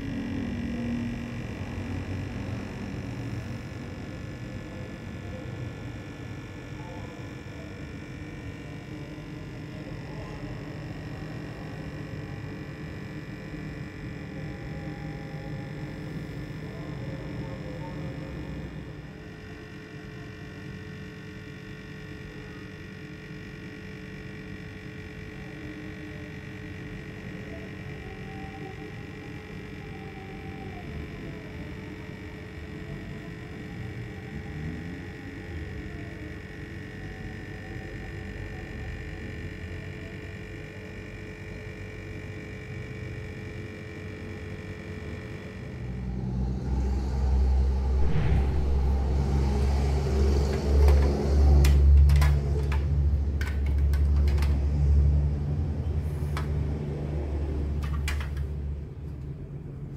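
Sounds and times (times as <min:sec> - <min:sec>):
steady hum with held tones: 0:00.0 - 0:59.9
loud low rumble: 0:45.6 - 0:53.4.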